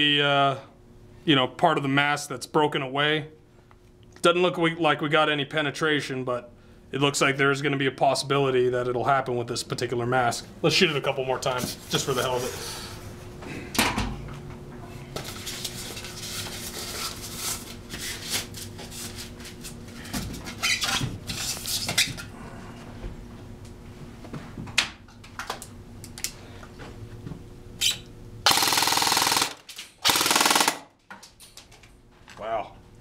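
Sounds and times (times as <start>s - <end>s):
airsoft rifle firing bursts: 28.5s - 30.9s.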